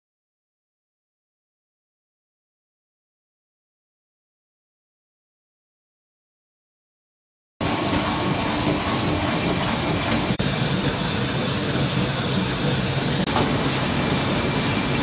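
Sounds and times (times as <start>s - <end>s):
printing press running: 7.6s - 15.0s.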